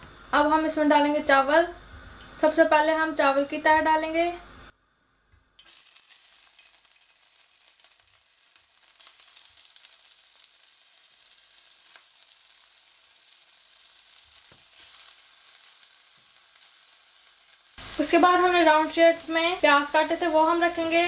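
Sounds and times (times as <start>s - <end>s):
rice sizzling in oil: 5.6s - 21.0s.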